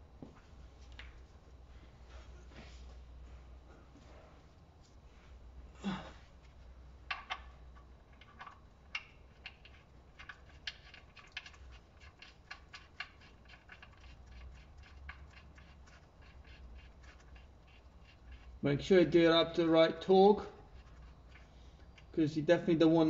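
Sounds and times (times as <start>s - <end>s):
low steady hum: 0.0s - 23.0s
drain plug clicks and scrapes: 7.1s - 18.6s.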